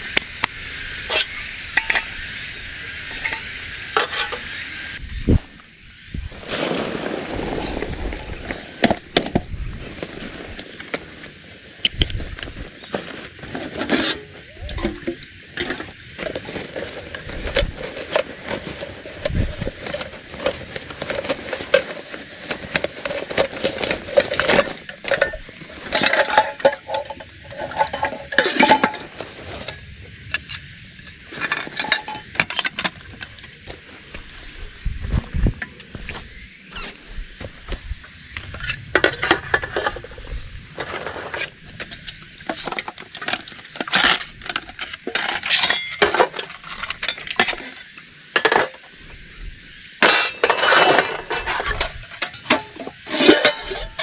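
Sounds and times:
metal canteen and cup clinking: 3.1 - 4.5, 13.5 - 29.8, 30.4 - 33.6, 40.9 - 48.8, 50.0 - 54.0.

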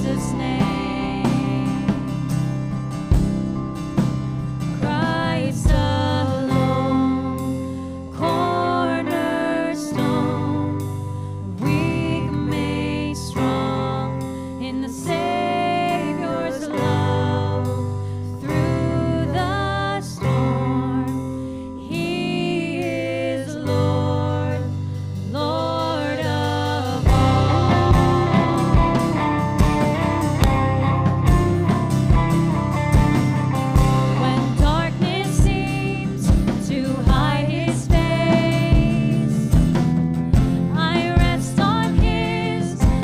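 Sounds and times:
person singing worship song: 0.0 - 2.1, 4.8 - 30.0, 34.1 - 39.5, 40.8 - 43.0
strummed guitar: 0.0 - 43.0.

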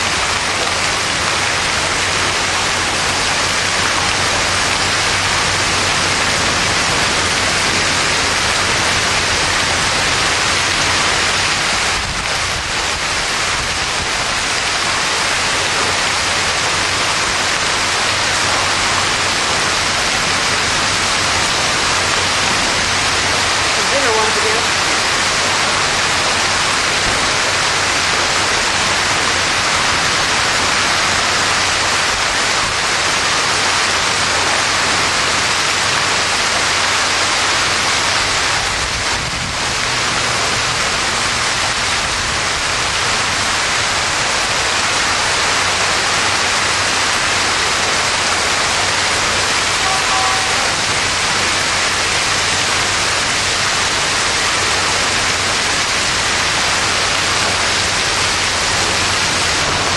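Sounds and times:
hail and heavy rain pounding: 0.0 - 59.9
short faint beep: 49.8 - 50.8.

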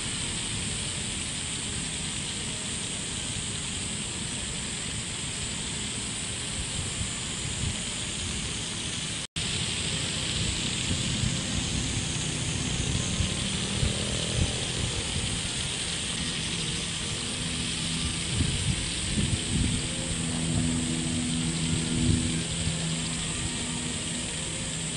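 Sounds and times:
pinwheels whirring and fluttering: 0.0 - 24.9
wind rumbling on microphone: 4.4 - 24.9.

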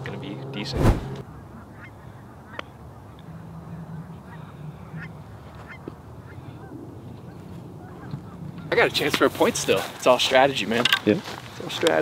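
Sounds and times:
geese honking: 1.2 - 9.0.

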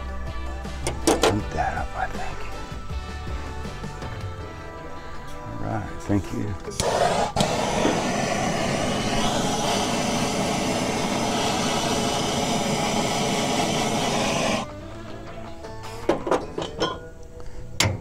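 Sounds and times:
propane torch hissing: 6.6 - 14.7.

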